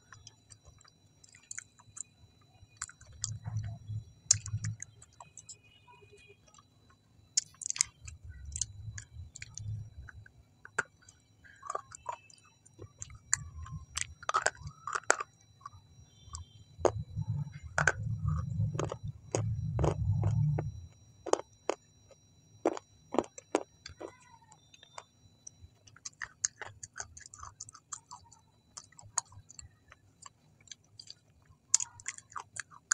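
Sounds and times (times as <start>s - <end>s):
low muffled chewing rumble: 0.0s - 5.6s, 7.4s - 21.8s
crunchy chewing of food: 0.0s - 32.9s.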